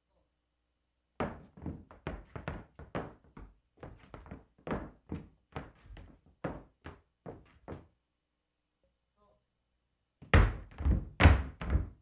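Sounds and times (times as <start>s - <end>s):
dance shoes on wooden floor: 1.2s - 7.9s, 10.2s - 12.0s.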